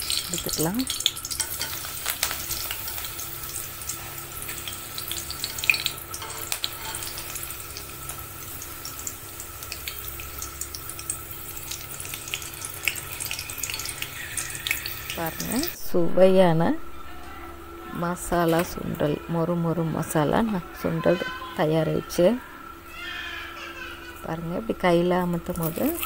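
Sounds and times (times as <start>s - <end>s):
leaves deep-frying in hot oil: 0.0s - 15.8s, 17.8s - 26.0s
oil crackles and pops: 0.0s - 15.8s, 25.4s - 26.0s.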